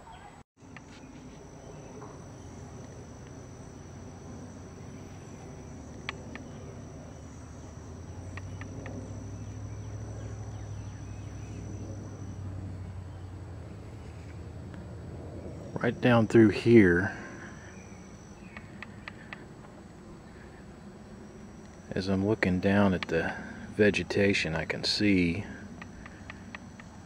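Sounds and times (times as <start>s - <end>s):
insect trilling: 0.6s - 27.0s
low rumble: 1.3s - 21.9s
faint sharp ticks: 8.3s - 9.0s, 25.8s - 27.0s.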